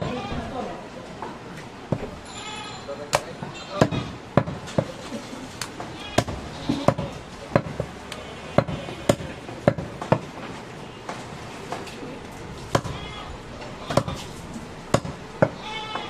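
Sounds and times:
cleaver chopping meat: 0:03.1 - 0:04.9, 0:06.2 - 0:07.9, 0:08.6 - 0:10.3, 0:12.7 - 0:13.0, 0:13.9 - 0:14.3, 0:14.9 - 0:15.6.

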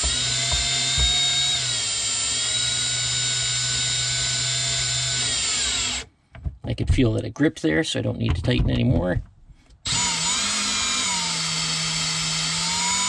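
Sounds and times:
cordless drill whining: 0:00.0 - 0:06.1, 0:09.8 - 0:13.0.

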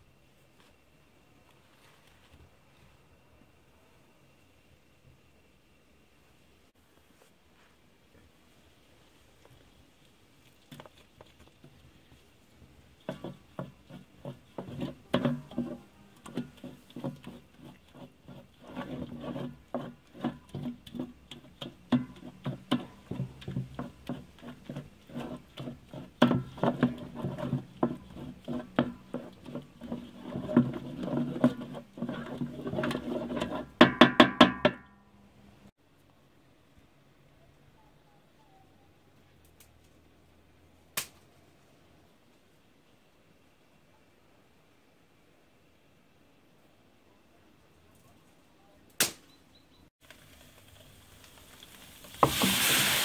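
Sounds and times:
wooden spoon scraping metal pan: 0:12.9 - 0:34.1.

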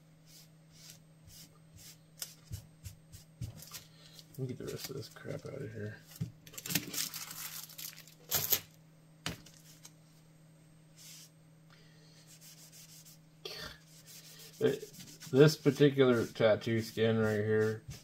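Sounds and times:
low steady hum: 0:00.0 - 0:18.0
paper towel rubbing: 0:12.3 - 0:13.2, 0:13.9 - 0:18.0.

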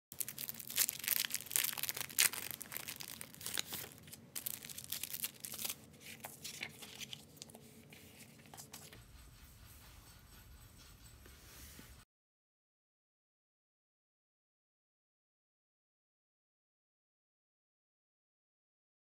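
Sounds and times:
plastic packaging crinkling and tearing: 0:00.1 - 0:07.6
paper sheets rustling: 0:00.2 - 0:09.0.

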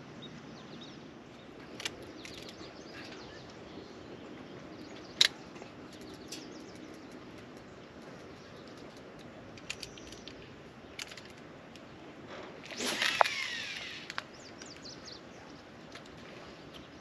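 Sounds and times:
light clicks: 0:04.8 - 0:11.9
line whizzing off reel: 0:12.6 - 0:14.2
fishing rod swishing: 0:12.7 - 0:13.8.

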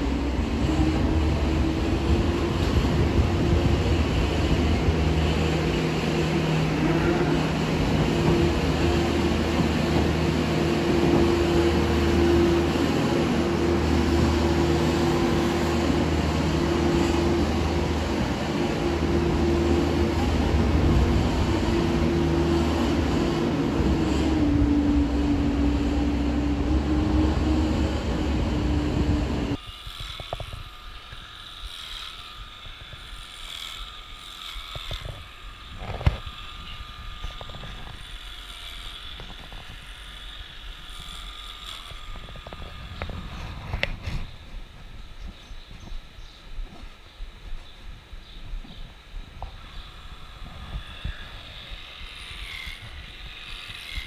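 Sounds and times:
loader engine whine: 0:00.0 - 0:29.6
electric clippers humming: 0:00.0 - 0:44.0, 0:49.4 - 0:54.0.

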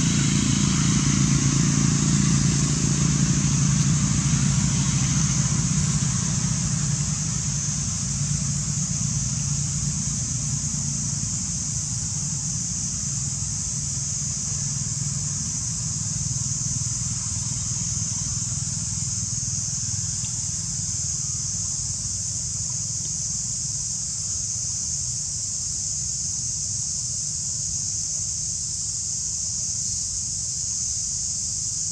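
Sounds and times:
high-pitched hiss: 0:00.0 - 0:31.9
low mechanical hum: 0:00.0 - 0:31.9.

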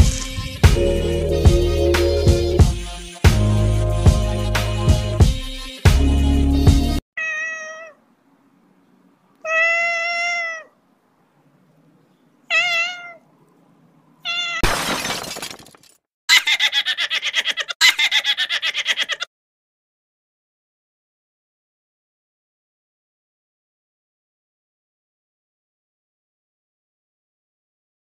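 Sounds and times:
cat meowing: 0:07.2 - 0:08.0, 0:09.4 - 0:10.8, 0:12.5 - 0:13.3, 0:14.2 - 0:14.6.

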